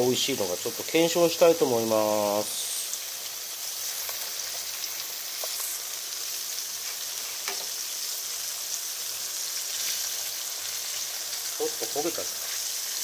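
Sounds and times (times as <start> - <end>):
tofu sizzling in oil: 0.0 - 13.0.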